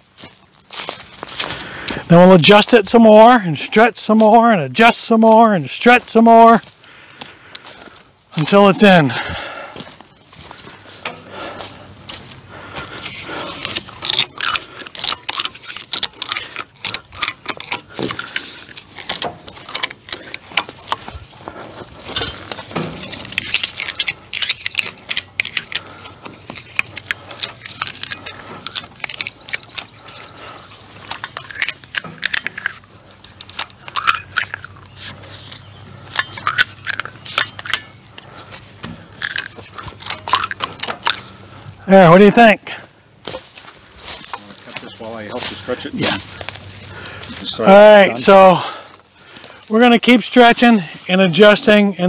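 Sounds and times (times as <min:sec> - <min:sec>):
ratchet strap clicking and rattling: 0:13.0 - 0:30.2, 0:31.0 - 0:41.4.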